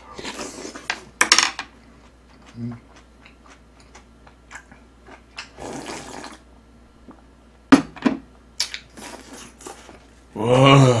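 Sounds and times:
person slurping broth: 5.6s - 6.4s.

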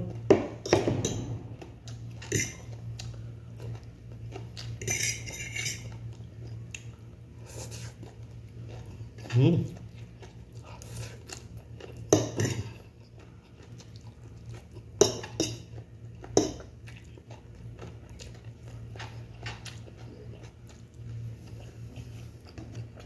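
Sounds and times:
low steady hum: 0.0s - 23.0s
fork scraping ceramic plate: 4.8s - 6.0s.

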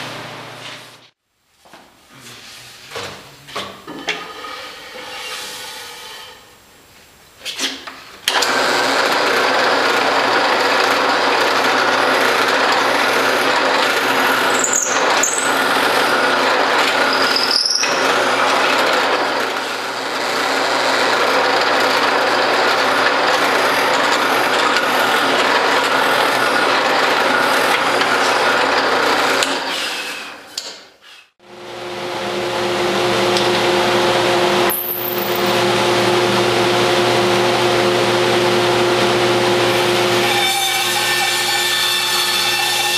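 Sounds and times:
drill press boring wood: 8.3s - 30.3s
bandsaw humming: 8.4s - 29.9s, 31.5s - 42.9s
high squeals: 14.4s - 16.1s, 17.0s - 18.2s.

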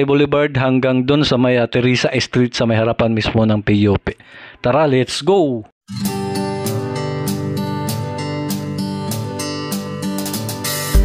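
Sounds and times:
strummed acoustic guitar music: 5.9s - 11.0s.

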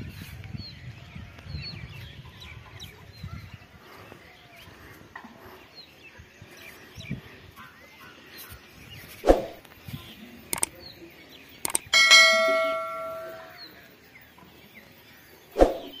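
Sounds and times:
button clicks: 11.7s - 11.9s
notification bell ding: 11.9s - 13.6s.

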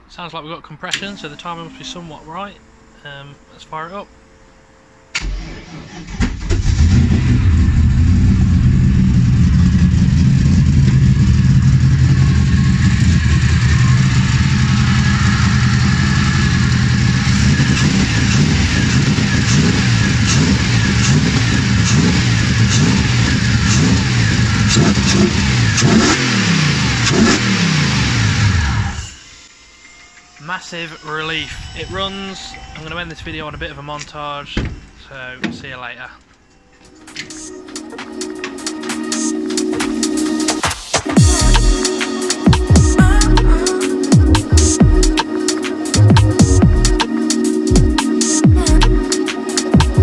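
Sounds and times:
starter cranking engine: 5.2s - 28.8s
engine running steadily: 5.2s - 29.0s.

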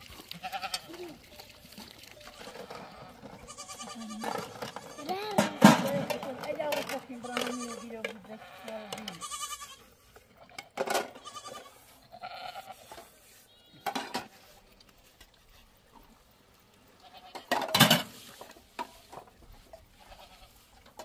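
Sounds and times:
goat bleating: 0.3s - 1.3s, 2.2s - 6.1s, 6.9s - 13.8s, 17.0s - 17.5s, 19.9s - 20.7s
metal pots and dishes clanking: 4.2s - 8.2s, 13.8s - 14.4s, 17.4s - 18.2s.

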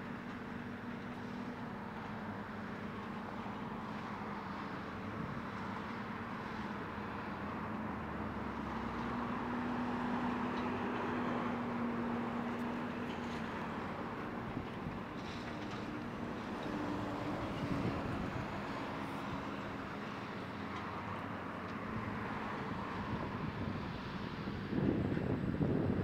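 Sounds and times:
excavator diesel engines droning: 0.0s - 26.0s.

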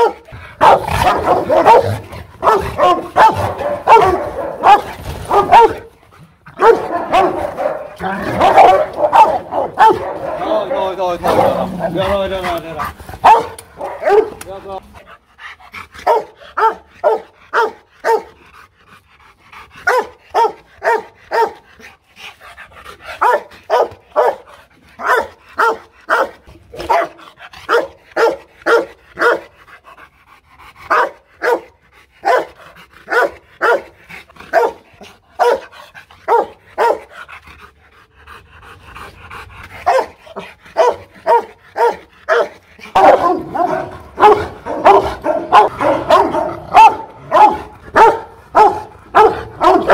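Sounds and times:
dog barking: 0.0s - 5.9s, 6.6s - 11.6s, 13.2s - 14.4s, 16.0s - 18.4s, 19.8s - 21.6s, 23.2s - 29.5s, 30.9s - 33.9s, 34.5s - 34.8s, 35.4s - 35.7s, 36.3s - 37.1s, 39.8s - 49.9s.

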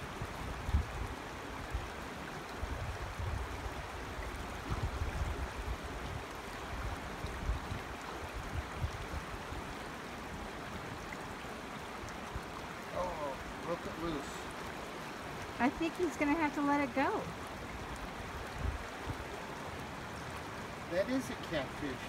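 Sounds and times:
wind rumble on microphone: 0.0s - 11.1s, 17.8s - 19.5s
creek water running over rocks: 0.0s - 22.0s.

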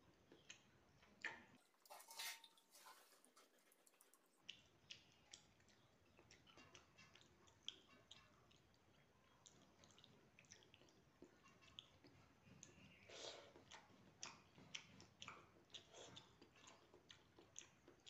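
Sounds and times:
person chewing food: 0.0s - 18.0s
hand rustling food on plate: 1.7s - 4.4s.

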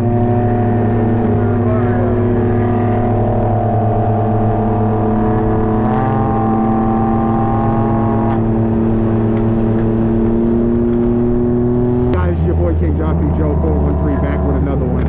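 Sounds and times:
engine running steadily: 0.0s - 15.0s
road noise: 0.0s - 15.0s.

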